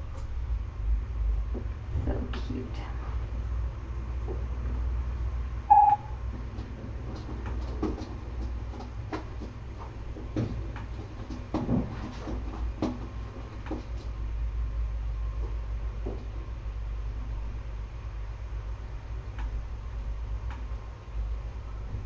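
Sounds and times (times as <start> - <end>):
steady low hum: 0.0 - 22.0
short high tone: 5.7 - 6.2.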